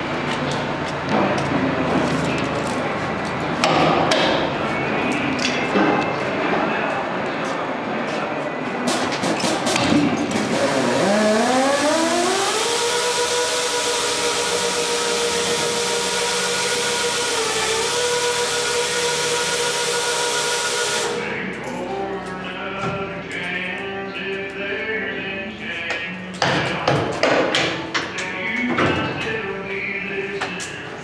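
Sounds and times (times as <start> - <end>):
hoist motor whine: 10.2 - 21.6
loud air hiss: 13.7 - 21.4.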